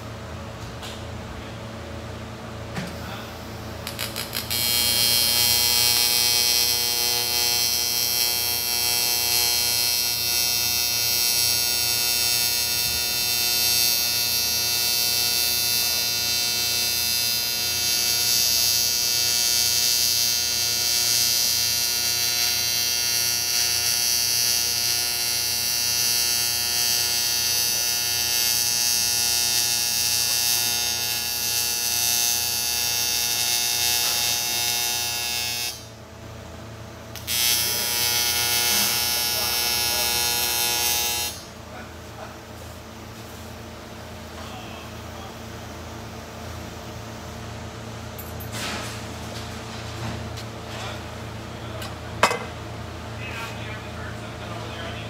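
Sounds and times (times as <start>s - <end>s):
motor humming and whining: 2.7s - 36.0s, 37.2s - 41.6s.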